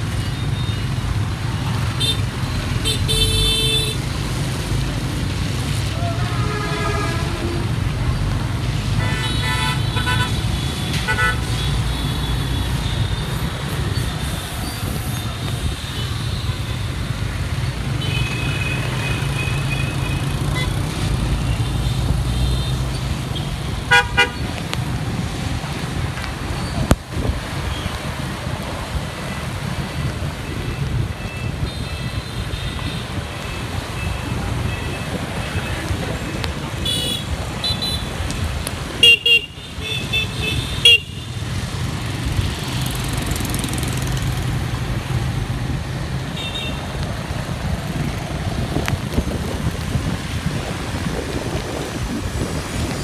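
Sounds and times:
wind and road noise on motorbike: 0:00.0 - 0:53.0
vehicle horn honking: 0:23.9 - 0:24.4.

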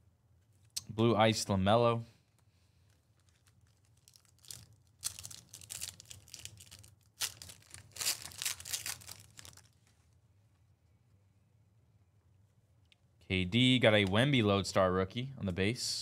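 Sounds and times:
wrappers crinkling and tearing: 0:02.8 - 0:10.0.

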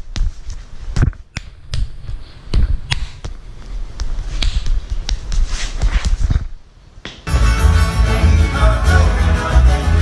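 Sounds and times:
hands and forearms slapping: 0:00.0 - 0:07.3.

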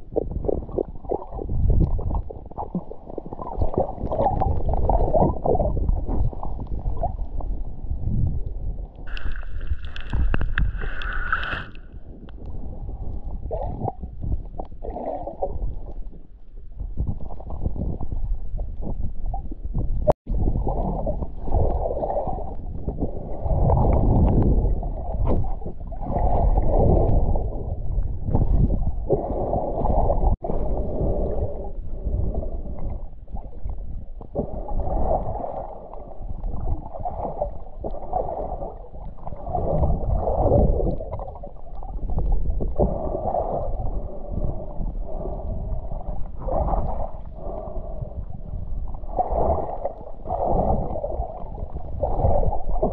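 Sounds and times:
muffled water sloshing and gurgling: 0:00.0 - 0:52.9.

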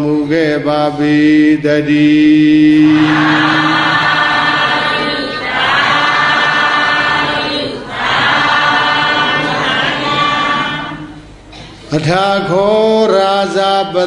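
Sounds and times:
group of voices chanting: 0:02.8 - 0:11.2.

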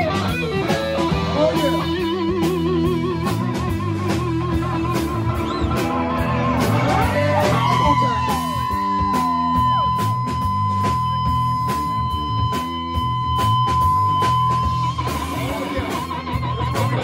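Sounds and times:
bass line: 0:00.0 - 0:17.0
drums: 0:00.0 - 0:17.0
electric guitar lead: 0:00.0 - 0:17.0.

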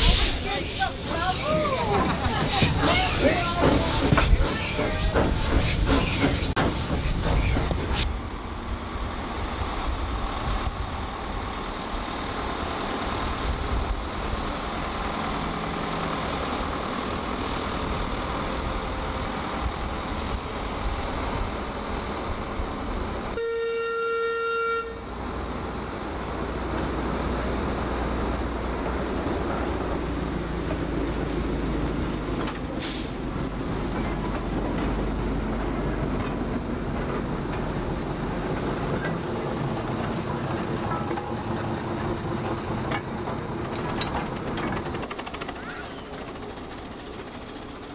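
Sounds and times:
locomotive engine rumble: 0:00.0 - 0:23.4, 0:24.8 - 0:47.9
locomotive horn toot: 0:23.3 - 0:25.1.

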